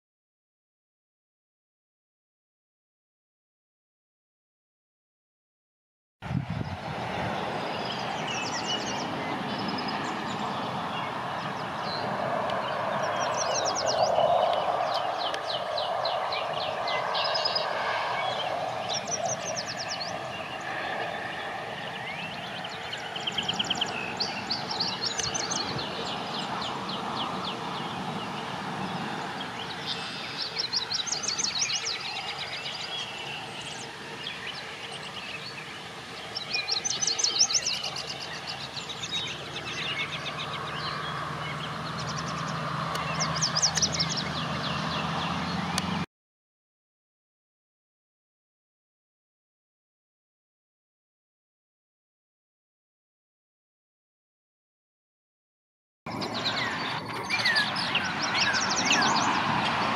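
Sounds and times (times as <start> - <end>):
bird singing high sweet notes: 12.6 - 45.6, 56.1 - 59.8.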